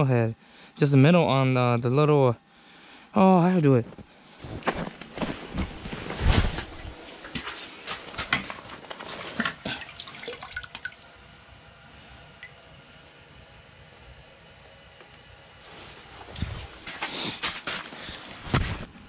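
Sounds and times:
water splashing in bucket: 9.2 - 11.2.

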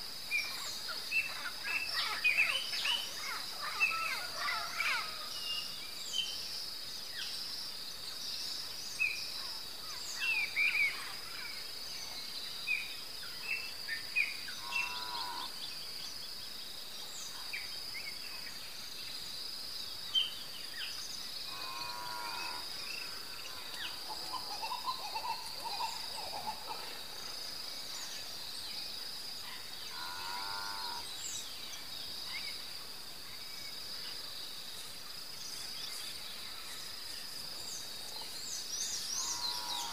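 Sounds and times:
insect trill: 0.0 - 39.9.

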